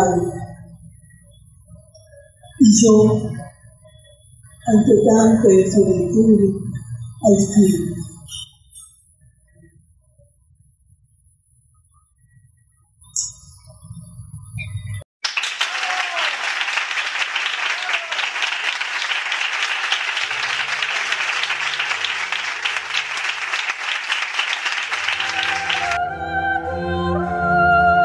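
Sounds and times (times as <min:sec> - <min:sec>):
audience applauding: 0:15.2 - 0:26.0
music with held notes: 0:25.0 - 0:28.0.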